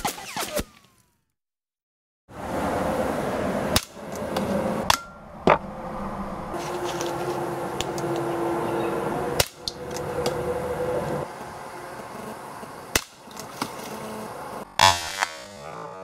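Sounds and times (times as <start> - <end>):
air pistol shots: 14.8 - 15.6.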